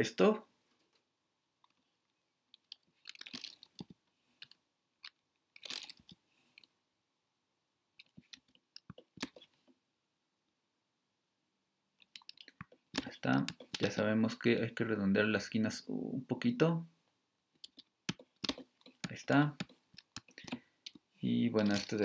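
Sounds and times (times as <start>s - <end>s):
computer mouse clicks: 12.0s - 14.7s, 17.6s - 21.0s
keyboard typing: 12.0s - 14.7s, 17.6s - 21.0s.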